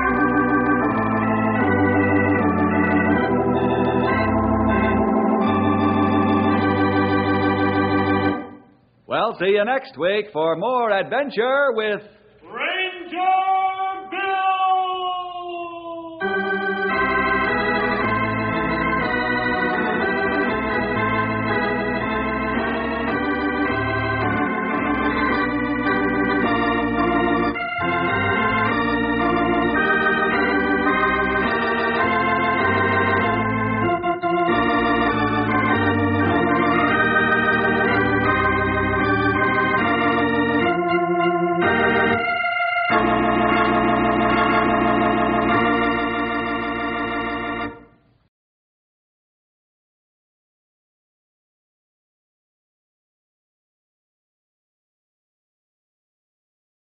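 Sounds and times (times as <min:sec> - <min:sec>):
organ playing sustained chords: 0:00.0 - 0:09.6, 0:16.2 - 0:47.9.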